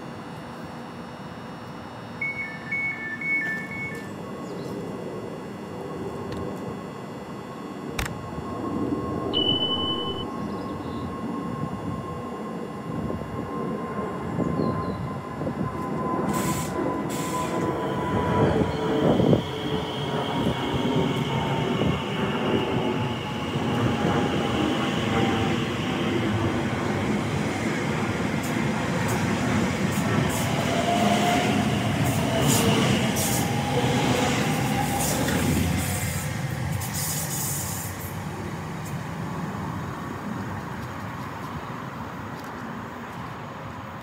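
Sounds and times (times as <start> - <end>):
thin motor whine: 0.0 - 16.2
electric train rumbling: 0.0 - 44.0.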